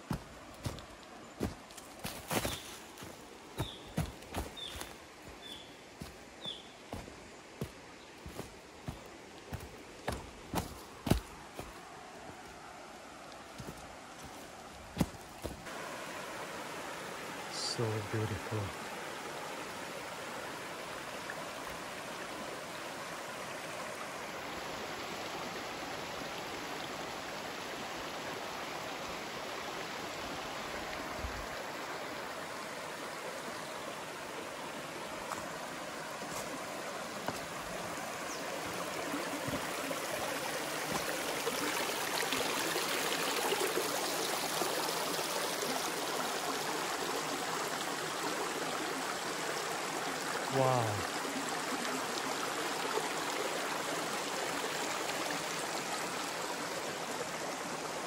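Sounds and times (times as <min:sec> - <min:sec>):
waterfall rushing: 0:15.0 - 0:21.0, 0:29.1 - 0:58.0.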